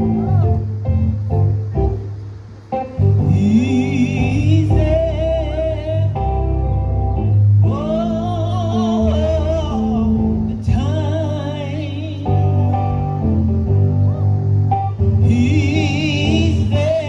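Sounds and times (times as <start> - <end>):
keyboard chords: 0.0 - 17.0
woman singing gospel: 15.2 - 17.0.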